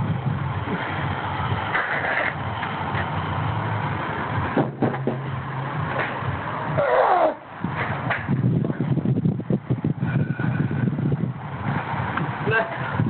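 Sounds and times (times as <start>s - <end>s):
steady low rumble: 0.0s - 13.0s
tyre thudding on concrete: 4.4s - 8.3s.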